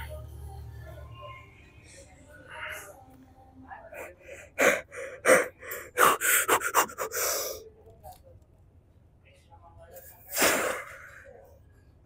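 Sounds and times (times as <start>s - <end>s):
man gasping breaths: 4.1s - 7.6s.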